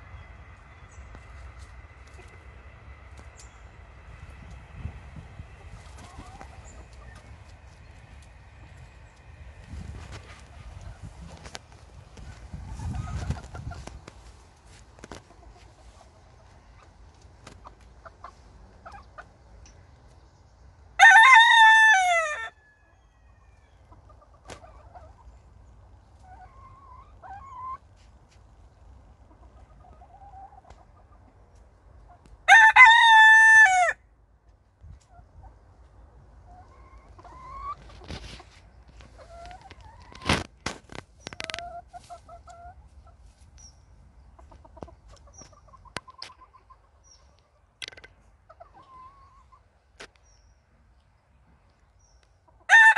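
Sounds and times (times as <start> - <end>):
chickens clucking: 0.0 - 21.6, 22.8 - 32.4, 34.4 - 52.9
rooster crowing: 21.0 - 23.6, 32.5 - 34.0, 52.7 - 52.9.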